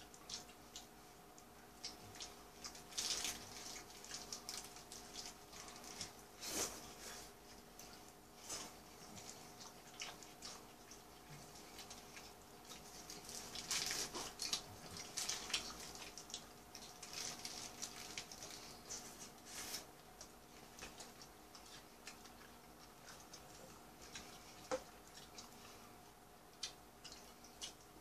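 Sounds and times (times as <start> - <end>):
chewing mouth clicks and smacks: 26.5 - 28.0.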